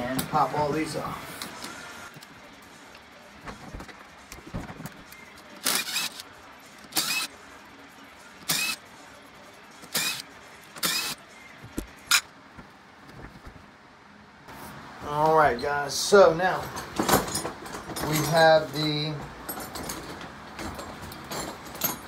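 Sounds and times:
power tool whining: 5.6 - 6.2, 8.5 - 8.8, 10.8 - 11.2.

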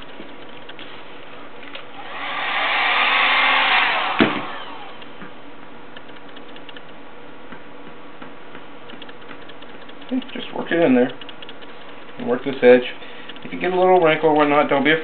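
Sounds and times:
heat gun blowing: 2.0 - 5.1.

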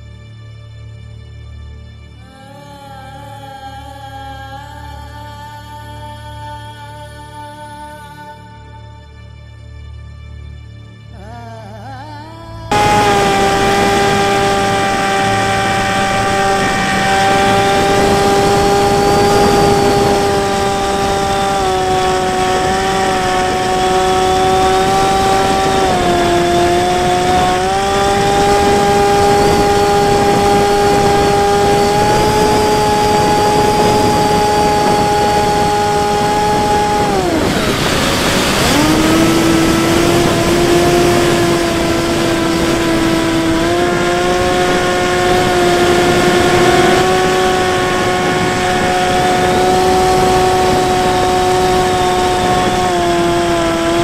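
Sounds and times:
electric motor and propeller whine: 12.7 - 54.0
wind rush: 12.7 - 54.0.

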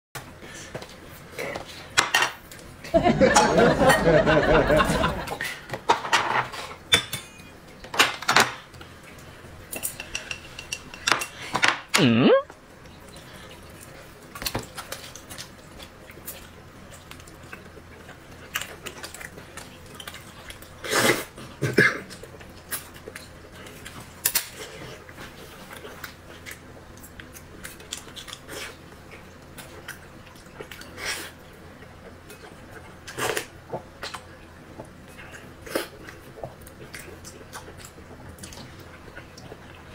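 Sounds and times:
chopsticks clinking on bowl: 9.8 - 11.4.

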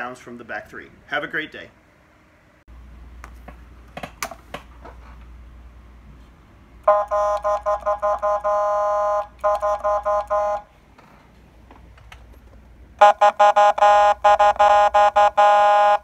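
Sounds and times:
electronic air horn blasts: 6.9 - 10.7, 13.0 - 16.0.

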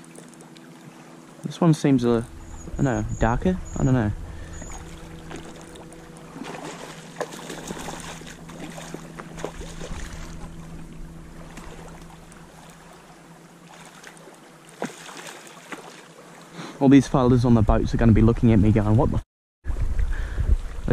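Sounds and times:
fish splashing in water: 4.4 - 16.4.

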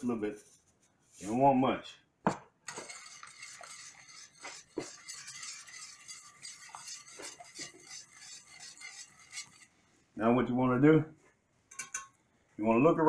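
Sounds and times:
whisk scraping metal pan: 2.7 - 9.8.

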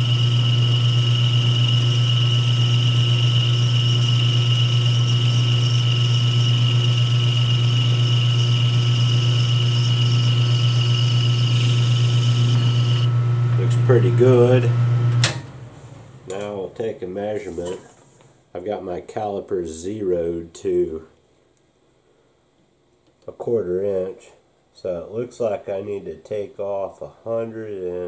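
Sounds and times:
metal lathe hum and whine: 0.0 - 17.6.

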